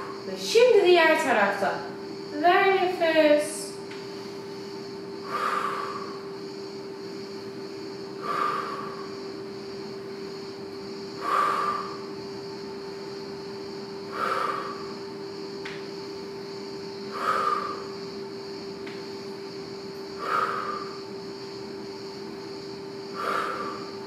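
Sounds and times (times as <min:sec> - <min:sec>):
steady hum: 0:00.0 - 0:24.0
woman breathing out hard: 0:05.2 - 0:06.2, 0:08.2 - 0:09.2, 0:17.1 - 0:18.0, 0:23.1 - 0:24.0.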